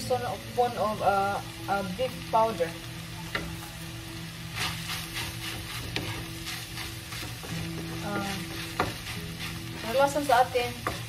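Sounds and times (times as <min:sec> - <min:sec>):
food sizzling in a hot pan: 0:00.0 - 0:11.0
wooden spoon scraping a pan: 0:04.5 - 0:11.0.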